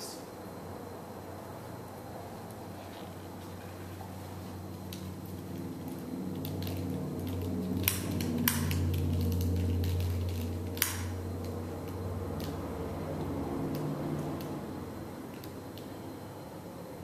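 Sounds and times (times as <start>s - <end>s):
steady low hum: 0.0s - 17.0s
sharp clicks: 6.4s - 12.6s.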